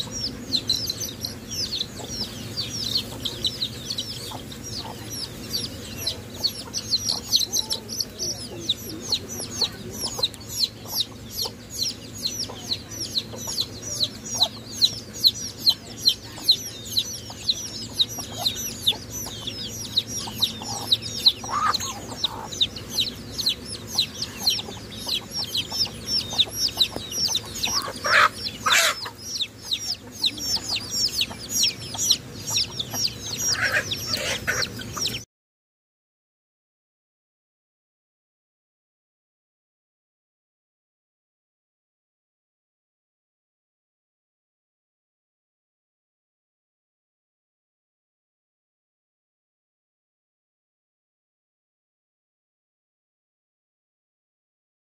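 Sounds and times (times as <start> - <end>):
chickens clucking: 0.0 - 35.3
ducklings peeping: 0.0 - 35.3.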